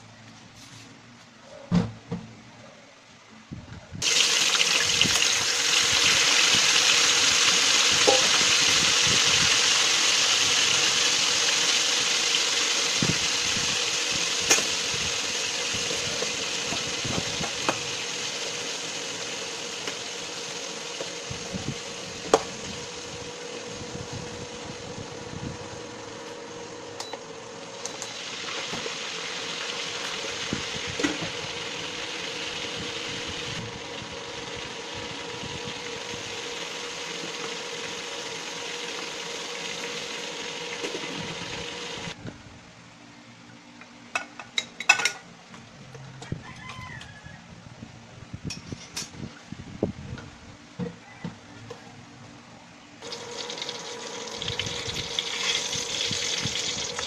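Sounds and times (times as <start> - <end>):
frying in hot oil sizzling: 4.0 - 26.5, 27.6 - 42.2, 53.0 - 57.0.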